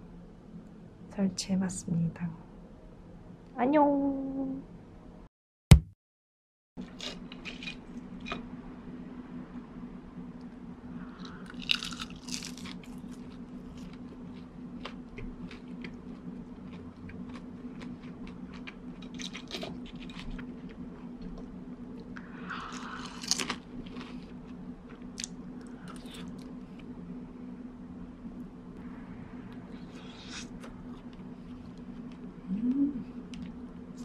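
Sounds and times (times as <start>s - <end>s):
steady low hum: 0.0s - 5.3s, 6.8s - 34.0s
crunching and chewing food: 6.8s - 8.5s, 11.0s - 27.0s.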